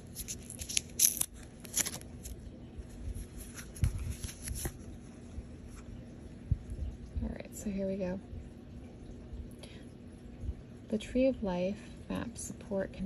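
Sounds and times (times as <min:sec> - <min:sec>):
cards bumping and rustling: 0:00.0 - 0:02.4, 0:03.1 - 0:05.0
paper scraping and rustling: 0:00.0 - 0:02.4, 0:03.1 - 0:05.1.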